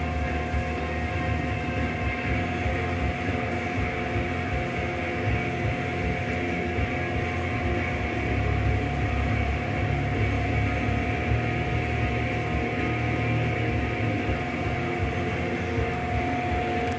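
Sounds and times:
mechanical hum with whine: 0.0s - 16.9s.

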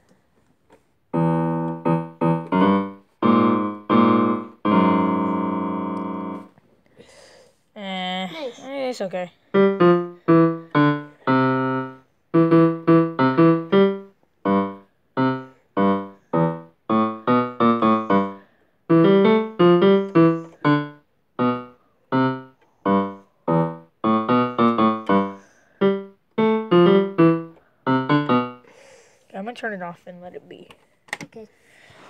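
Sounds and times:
electronic keyboard piano tune: 1.1s - 6.6s, 9.5s - 28.7s.

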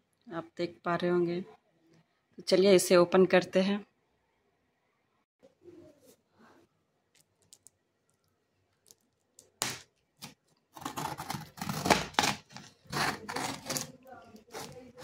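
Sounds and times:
knife scraping along tape: 10.2s - 15.0s.

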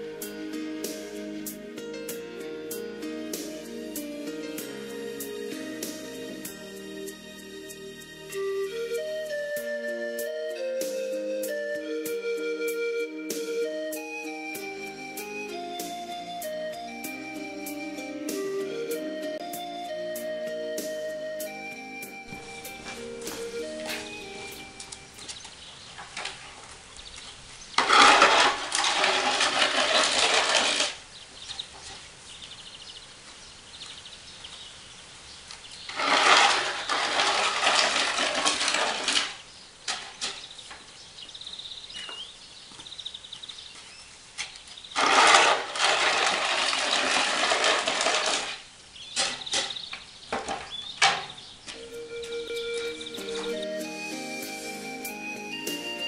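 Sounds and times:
snow shovel scraping paving: 22.2s - 26.8s, 27.6s - 31.1s, 35.8s - 40.6s, 44.8s - 50.7s, 52.6s - 54.1s.

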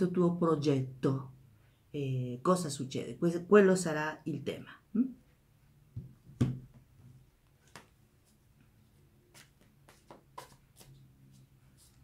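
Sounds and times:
card deck tap: 9.3s - 10.6s.

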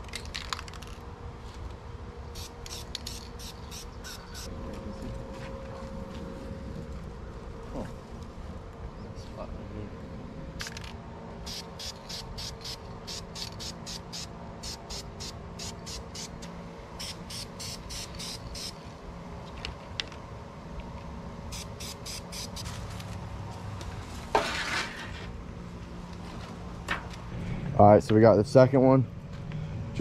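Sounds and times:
low steady hum: 0.0s - 30.0s
spray paint can hissing: 2.4s - 4.5s, 11.4s - 16.4s, 17.0s - 18.8s, 21.5s - 22.7s.

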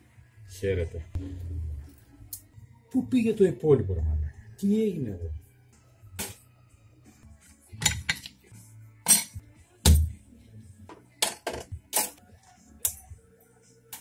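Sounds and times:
faint background music: 0.0s - 14.0s
metal parts and tools clinking: 7.8s - 8.4s, 9.1s - 9.4s.

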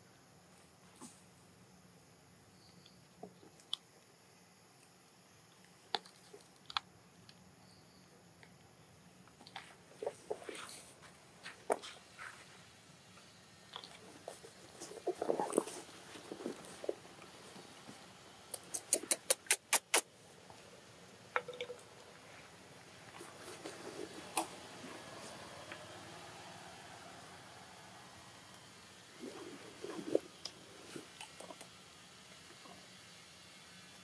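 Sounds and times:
sharp clicks: 18.5s - 20.1s.

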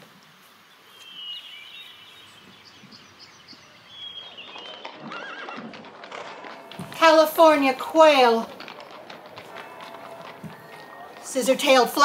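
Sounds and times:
horse whinnying: 3.9s - 11.3s.

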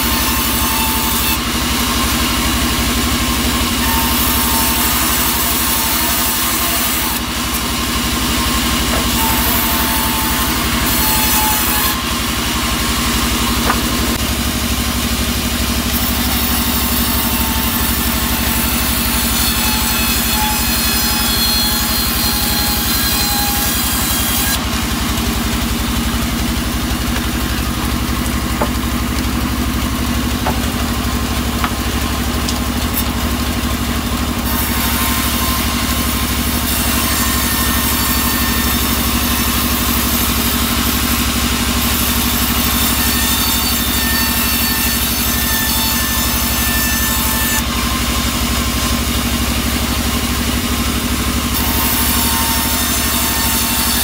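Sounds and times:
band saw cutting wood: 0.0s - 54.0s
low machine drone: 7.2s - 16.4s, 23.5s - 34.5s.

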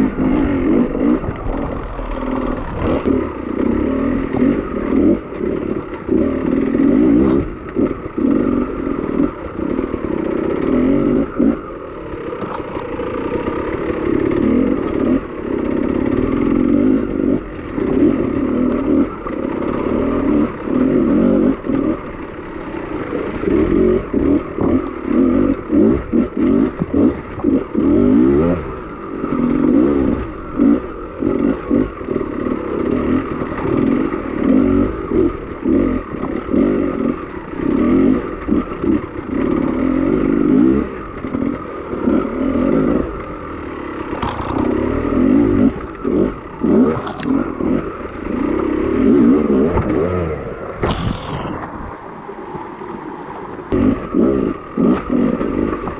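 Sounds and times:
motorcycle engine revving: 0.0s - 55.9s
clattering and scraping over rocks: 12.3s - 13.0s, 44.1s - 45.1s, 46.9s - 47.4s.

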